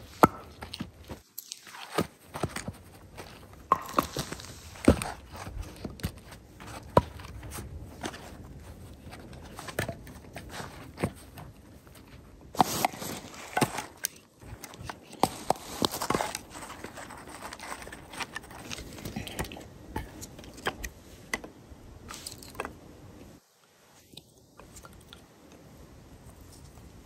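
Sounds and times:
kindling sticks rustling: 0.0s - 21.4s, 22.0s - 22.7s
firewood knocking and scraping: 2.0s - 21.6s.

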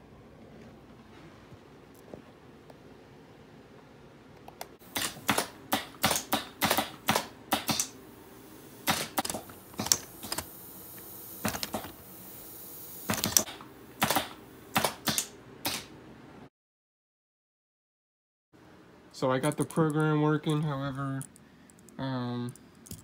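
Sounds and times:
pneumatic valves clacking: 4.8s - 8.0s, 8.7s - 15.9s
short air puffs: 4.8s - 15.9s.

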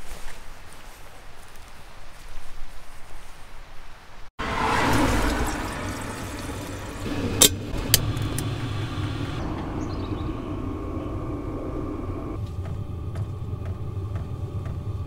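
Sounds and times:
gas burner rumbling: 5.5s - 15.0s.

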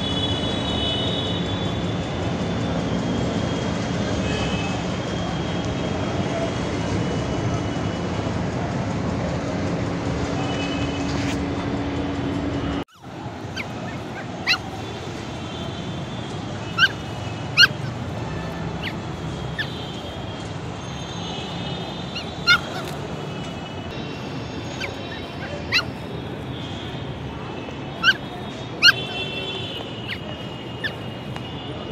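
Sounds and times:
puppies yelping: 12.9s - 31.2s.

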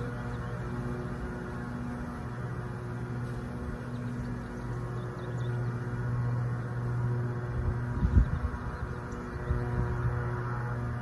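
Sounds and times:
honeybees buzzing: 0.0s - 11.0s.

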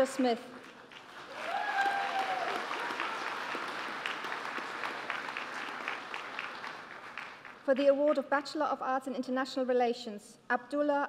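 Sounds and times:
audience applauding: 0.6s - 7.7s.

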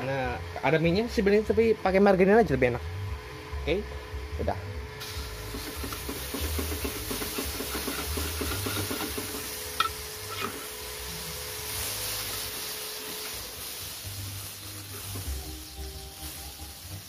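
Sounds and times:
margarine sizzling in a frying pan: 5.0s - 17.0s
metal spatula scraping a pan: 7.1s - 10.8s.

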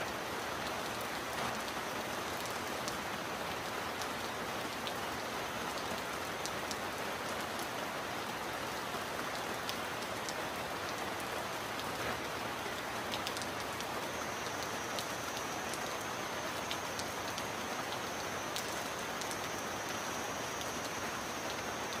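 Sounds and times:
heavy rain: 0.0s - 22.0s
sharp raindrop ticks: 5.8s - 6.8s, 11.7s - 22.0s.

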